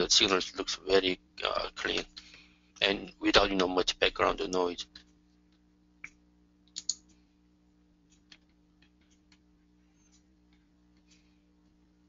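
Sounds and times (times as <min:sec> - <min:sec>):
electrical hum: 0:00.0 - 0:12.0
computer mouse clicks: 0:06.0 - 0:07.2.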